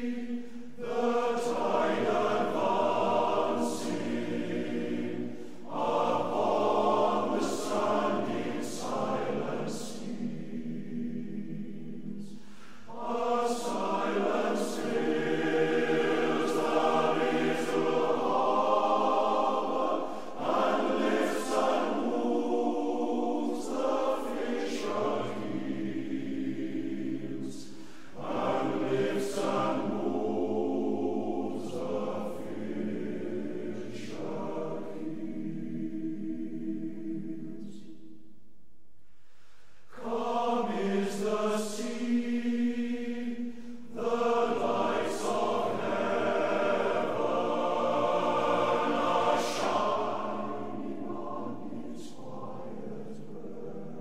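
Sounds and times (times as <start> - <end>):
choir singing: 0.0 - 38.2, 39.8 - 54.0.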